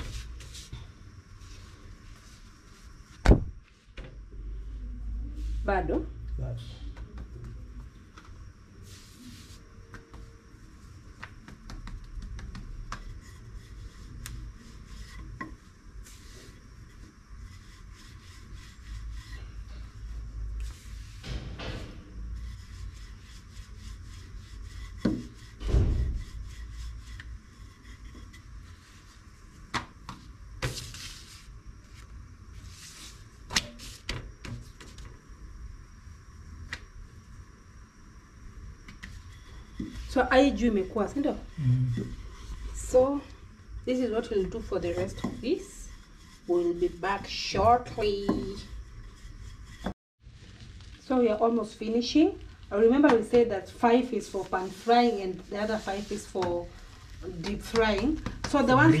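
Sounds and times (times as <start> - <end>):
low kitchen rumble: 4.2 - 33.5.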